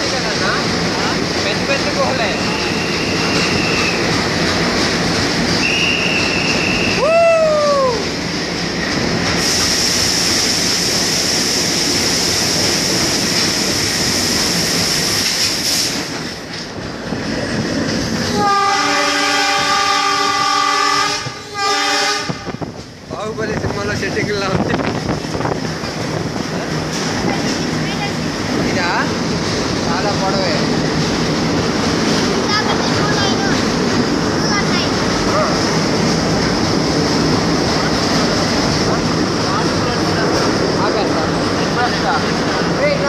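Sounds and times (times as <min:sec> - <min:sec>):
train wheels rumbling on rails: 0:00.0 - 0:43.0
wheel squeals: 0:02.3 - 0:04.1, 0:05.5 - 0:07.0
train horn: 0:18.3 - 0:22.6.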